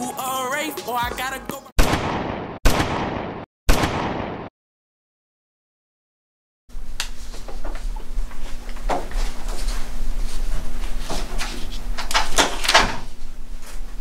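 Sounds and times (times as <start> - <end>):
low electrical hum: 6.7 - 14.0.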